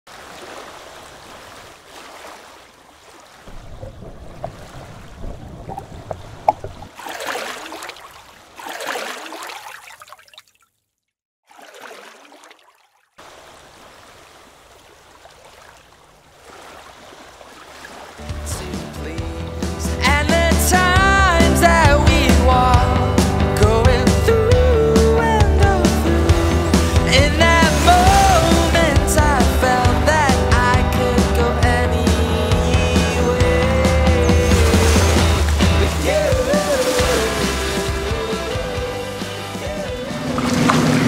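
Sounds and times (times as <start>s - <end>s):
paddle strokes swishing: 0.1s - 10.4s, 11.5s - 13.0s, 34.4s - 38.1s
water splashing and trickling: 0.1s - 19.2s, 25.3s - 41.0s.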